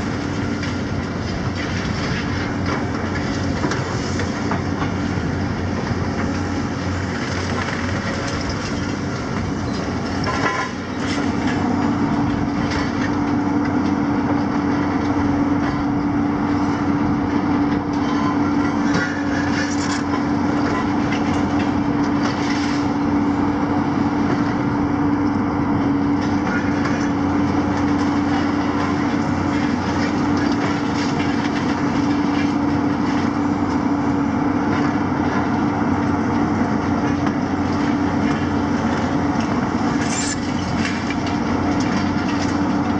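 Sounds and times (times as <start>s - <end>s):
excavator diesel engines running: 0.0s - 42.9s
rubble clattering and crunching: 6.2s - 13.1s.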